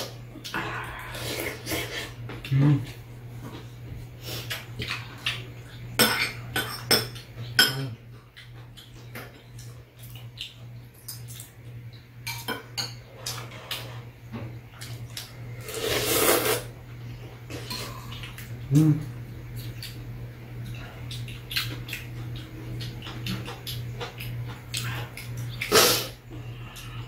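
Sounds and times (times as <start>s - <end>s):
utensils clinking on ceramic bowls: 6.0s - 8.0s.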